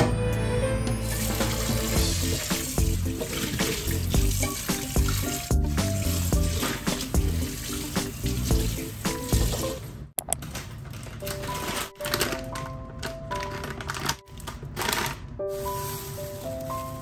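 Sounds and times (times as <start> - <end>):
background music: 0.0 - 9.9, 11.2 - 17.0
tap water running onto a pan: 1.1 - 9.8.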